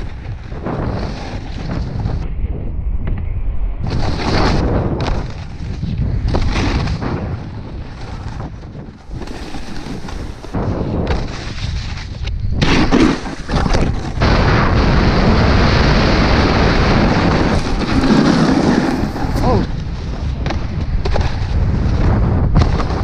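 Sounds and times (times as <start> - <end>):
snowboard scraping over snow: 0.0 - 2.2, 3.8 - 23.0
wind buffeting microphone: 0.0 - 23.0.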